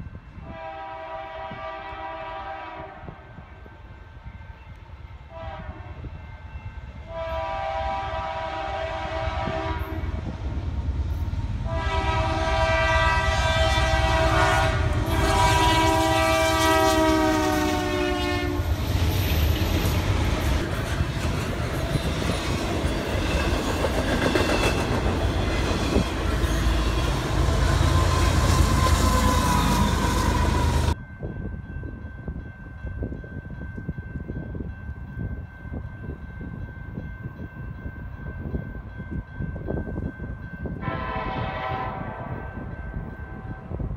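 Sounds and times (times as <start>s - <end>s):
locomotive air horn: 0.4s - 3.4s, 5.3s - 6.1s, 7.1s - 10.2s, 11.6s - 18.7s, 26.5s - 31.0s, 40.8s - 42.4s.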